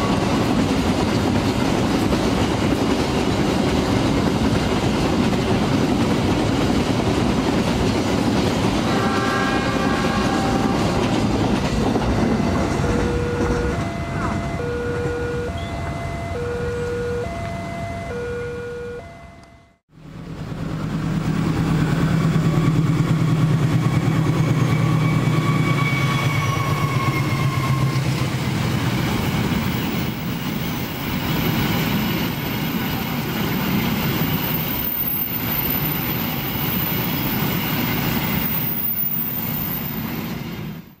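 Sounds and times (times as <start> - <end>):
rail cars rumbling: 0.0 - 41.0
locomotive engine drone: 8.8 - 34.8.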